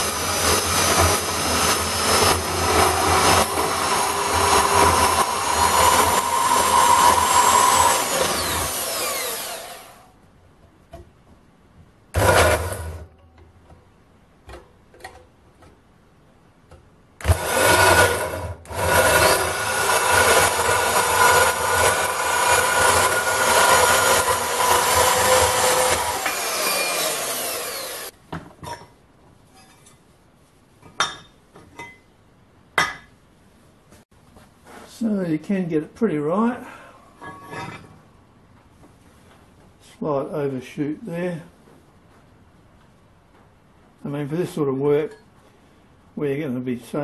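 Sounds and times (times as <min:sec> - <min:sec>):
bandsaw cutting steel tube: 0:00.0 - 0:10.1, 0:12.2 - 0:13.2, 0:17.2 - 0:28.1.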